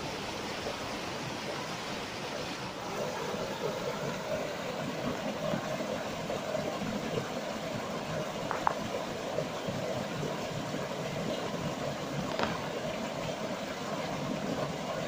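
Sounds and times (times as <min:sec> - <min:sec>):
stream running over rocks: 0:00.0 - 0:15.0
cascade splashing into pool: 0:12.1 - 0:13.3.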